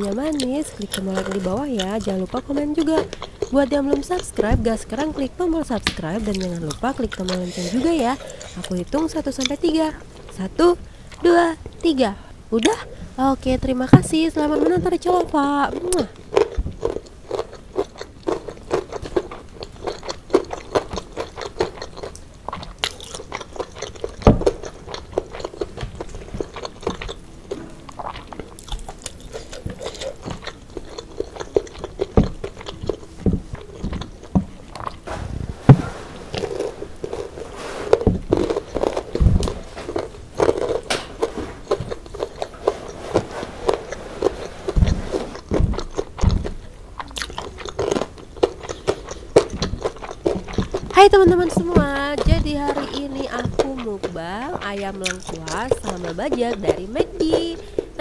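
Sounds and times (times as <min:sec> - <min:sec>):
chewing and crunching food: 0:00.0 - 0:58.0.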